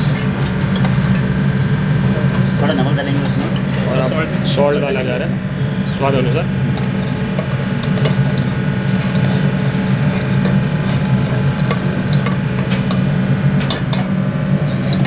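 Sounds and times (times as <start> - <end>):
steady low hum: 0.0 - 15.0
ladle scraping a metal pot: 3.2 - 4.0, 6.6 - 15.0.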